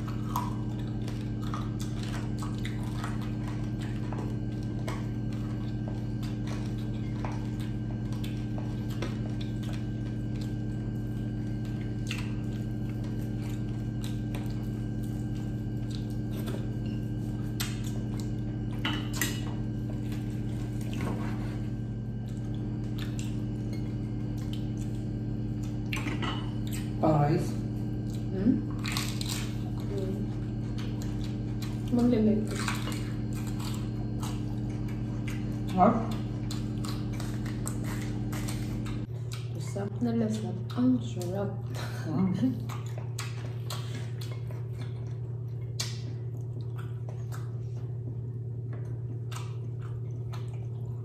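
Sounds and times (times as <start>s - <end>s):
crunching and chewing: 0.0s - 51.0s
steady low hum: 0.0s - 51.0s.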